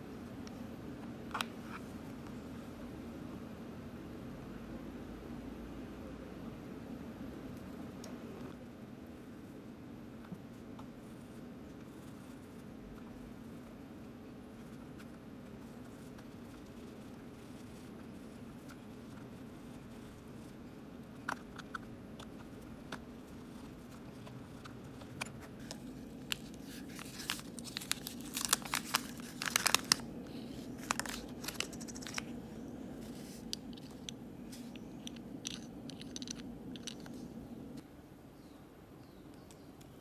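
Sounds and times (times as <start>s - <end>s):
steady low hum: 0.0s - 40.0s
small clicks taps and crinkles: 14.6s - 32.4s, 33.0s - 37.8s.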